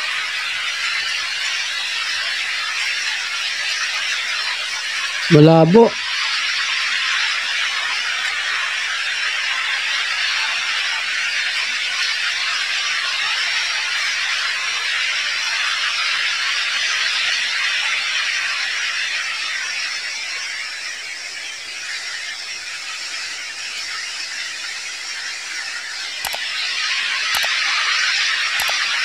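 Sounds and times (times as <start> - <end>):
water rushing in a concrete tunnel: 0.0 - 5.4, 6.0 - 29.0
mouse clicks: 26.2 - 26.5, 27.3 - 27.6, 28.6 - 28.8.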